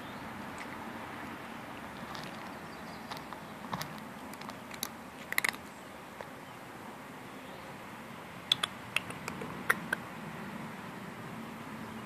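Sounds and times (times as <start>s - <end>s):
cat crunching dry kibble: 1.9s - 6.3s.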